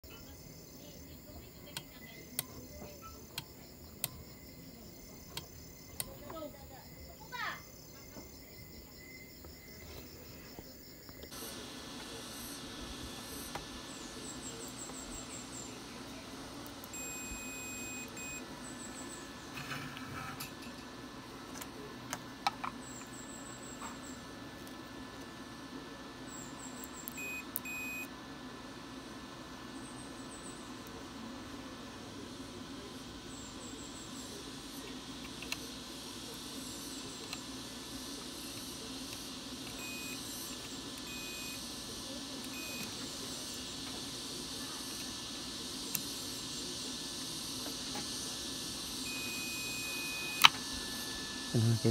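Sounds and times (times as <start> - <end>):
fast high insect chirping: 0.1 - 11.4
steady hiss: 0.1 - 20.5, 28.6 - 51.9
sharp clicks: 3.3 - 4.2
multimeter buzzer beeping: 16.7 - 19.2, 26.3 - 28.1, 38.2 - 41.8, 42.4 - 43.8, 47.6 - 51.9.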